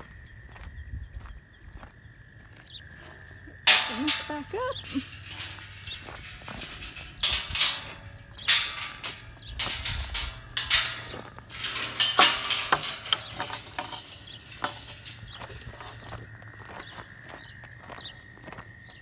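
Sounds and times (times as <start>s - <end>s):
metal gate clinking and rattling: 3.6s - 16.2s.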